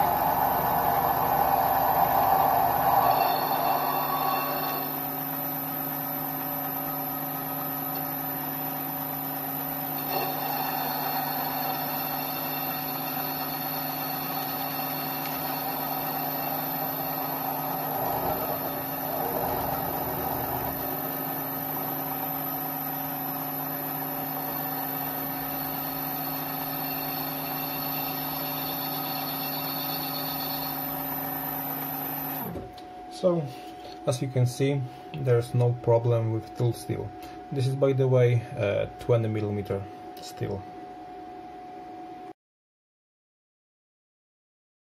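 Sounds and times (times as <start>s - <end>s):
lathe cutting steel: 0.0s - 32.6s
lathe motor and gear whine: 0.0s - 42.3s.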